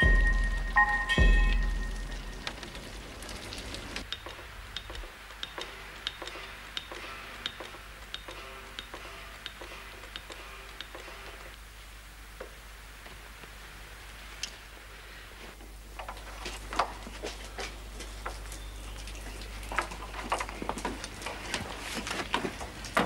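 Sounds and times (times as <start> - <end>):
deep low boom: 0.0 - 3.1
sharp clicks: 4.0 - 11.6.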